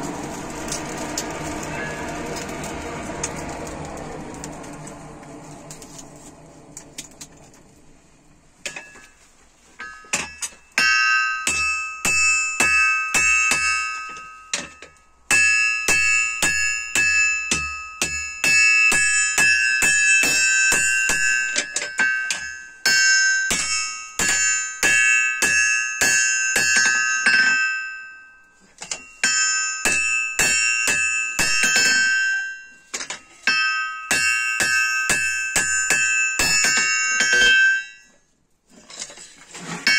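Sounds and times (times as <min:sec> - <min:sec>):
hammer striking steel on anvil: 0:00.0 - 0:05.0, 0:08.6 - 0:09.2, 0:09.8 - 0:28.2, 0:28.8 - 0:38.2
anvil ringing: 0:00.0 - 0:05.4, 0:08.6 - 0:09.2, 0:09.8 - 0:38.3.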